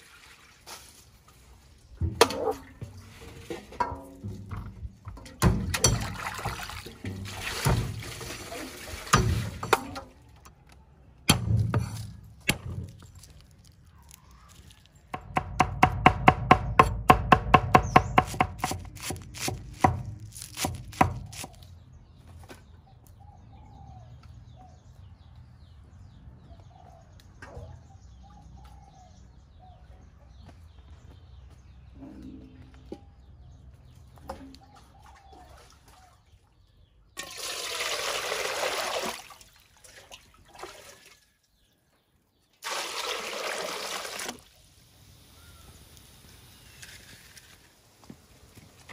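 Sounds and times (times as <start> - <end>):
water pouring into a wok: 37.2 - 41.0, 42.6 - 44.6.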